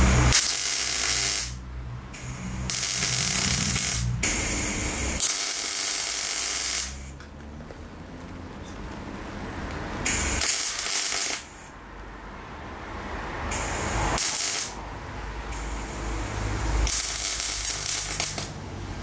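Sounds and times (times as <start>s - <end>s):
crackling hissing welding arc: 0.0s - 7.2s, 10.0s - 11.8s, 13.5s - 14.8s, 15.5s - 19.0s.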